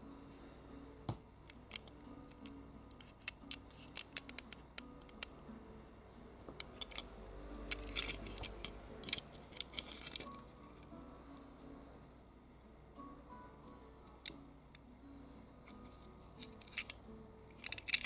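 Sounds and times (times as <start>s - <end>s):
toy car clicking in hand: 1.7s - 5.3s, 6.6s - 10.4s, 16.4s - 18.0s.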